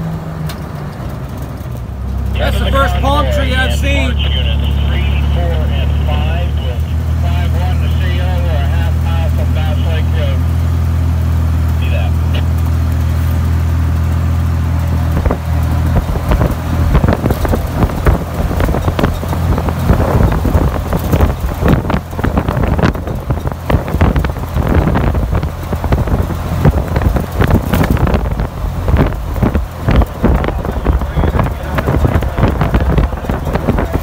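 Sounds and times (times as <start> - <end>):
car engine drone: 0.0 - 34.0
wind buffeting microphone: 15.1 - 34.0.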